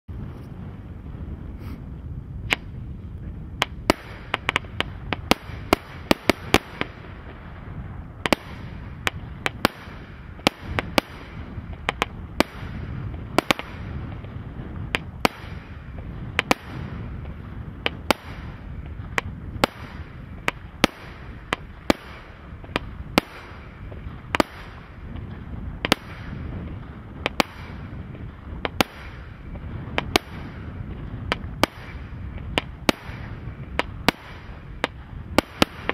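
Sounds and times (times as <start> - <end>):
firework shells bursting: 8.1 - 35.9.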